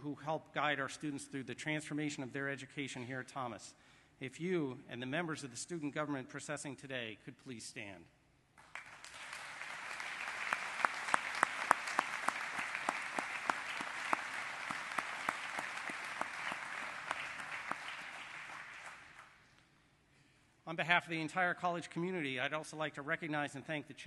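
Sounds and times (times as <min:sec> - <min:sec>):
audience applauding: 0:08.6 - 0:19.4.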